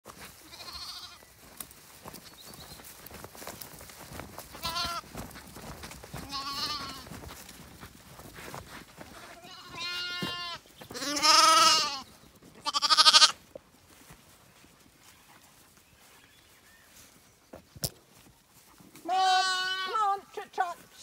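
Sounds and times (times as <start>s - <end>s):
lambs bleating: 0.4s - 1.3s, 4.6s - 5.1s, 6.1s - 7.1s, 9.1s - 13.4s, 19.1s - 20.2s.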